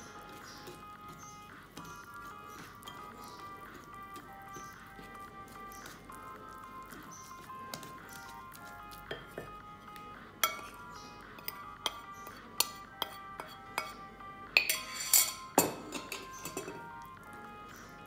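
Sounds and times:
light background music: 0.0s - 18.0s
metal spoon clinking on plate: 10.4s - 10.8s, 11.4s - 14.0s, 14.6s - 16.9s.

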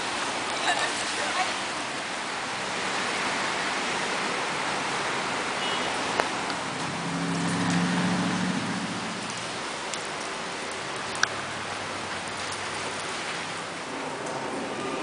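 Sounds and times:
rain hissing: 0.0s - 15.0s
vehicle engine hum: 0.1s - 15.0s
water running over stone basin: 5.8s - 15.0s.

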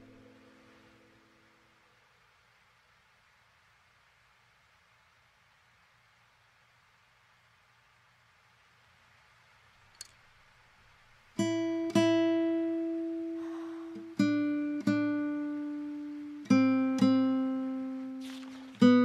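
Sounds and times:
slow acoustic guitar notes: 0.0s - 1.8s, 11.4s - 19.0s.

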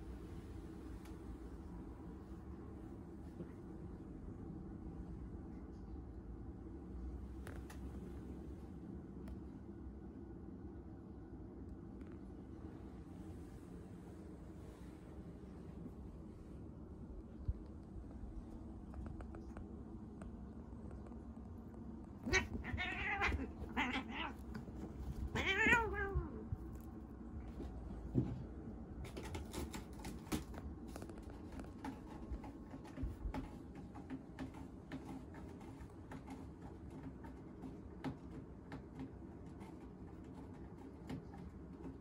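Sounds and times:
cat crying angrily: 22.3s - 24.4s, 25.3s - 26.4s.

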